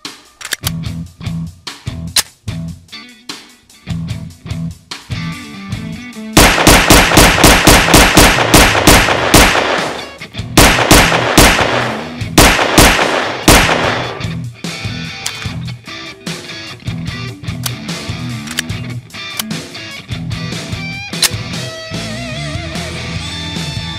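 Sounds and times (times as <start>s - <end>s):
background music with bass line: 0.0s - 23.9s
rapid gunfire bursts: 6.4s - 14.3s.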